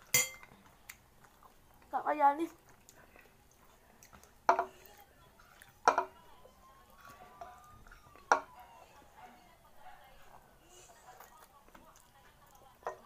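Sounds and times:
faint eating sounds: 0.0 - 13.0
chopsticks clinking on ceramic bowls: 0.1 - 0.5.

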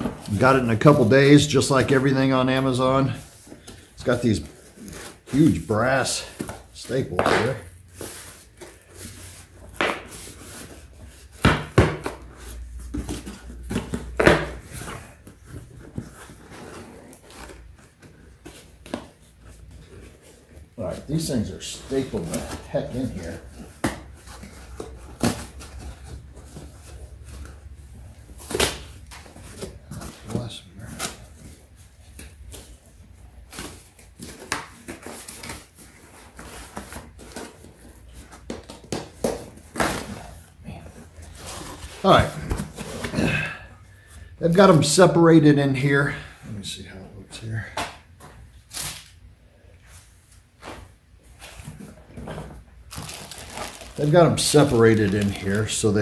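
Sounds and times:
cardboard rustling and tearing: 51.5 - 56.0.

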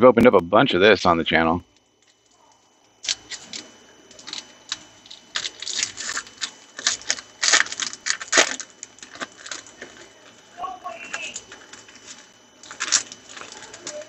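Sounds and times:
foil wrapper tearing and crinkling: 3.0 - 14.0.

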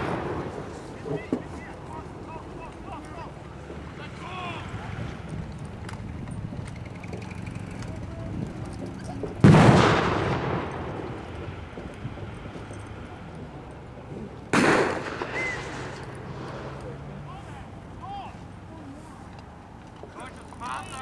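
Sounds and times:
explosions with rolling echo: 0.0 - 1.8, 9.2 - 13.0, 14.5 - 16.8.

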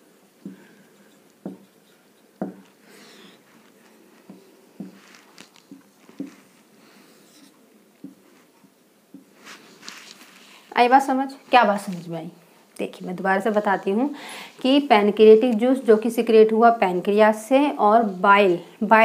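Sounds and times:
marker rubbing on whiteboard: 0.4 - 2.8
marker tip tapping whiteboard: 1.4 - 1.8, 2.4 - 2.7.

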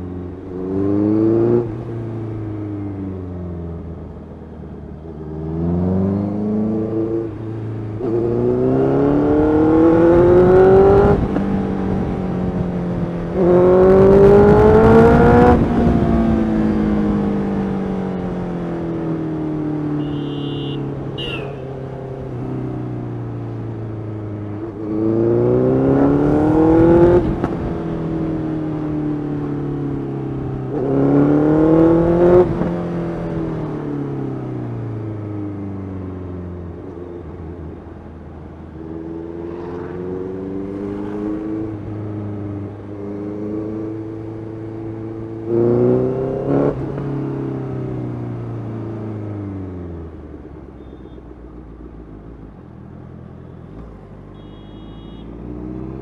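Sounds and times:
motorcycle engine accelerating: 38.9 - 47.5.

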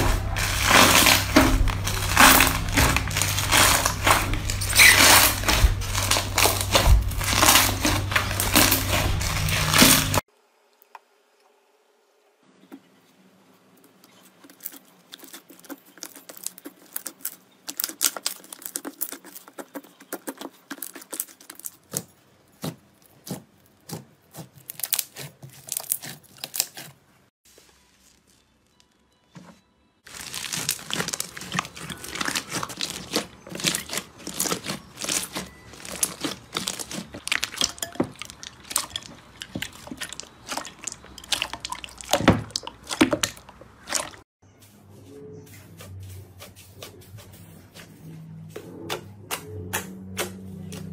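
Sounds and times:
slime crackling and popping: 0.0 - 10.2, 14.4 - 22.0, 23.2 - 26.9, 30.1 - 44.2.

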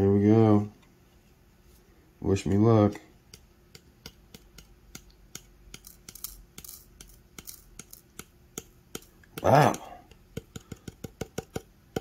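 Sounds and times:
small metal pieces clicking on scale: 5.7 - 8.0.

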